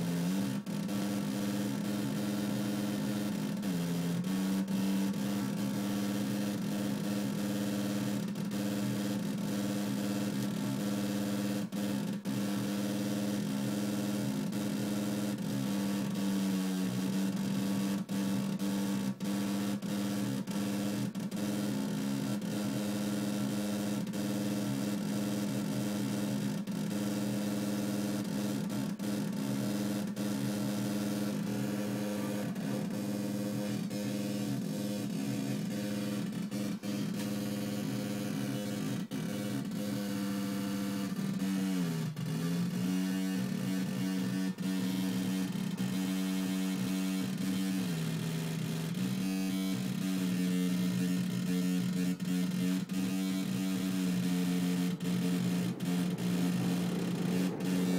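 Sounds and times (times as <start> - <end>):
low buzzing electronic hum: 29.8 - 41.0, 53.4 - 57.9.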